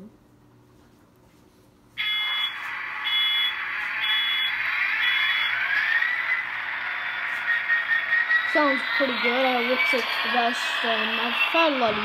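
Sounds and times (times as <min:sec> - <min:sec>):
high beep: 0:02.0 - 0:05.6
model locomotive rushing noise: 0:02.2 - 0:12.0.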